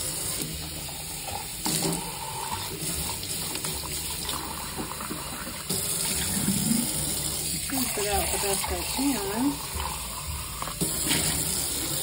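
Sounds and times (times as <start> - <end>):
water running into a jug: 0.0 - 12.0
water splashing into metal sink: 0.0 - 12.0.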